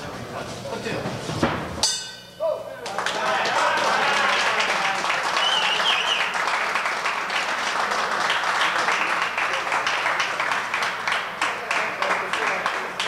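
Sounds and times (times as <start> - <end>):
spectators clapping: 2.8 - 13.0.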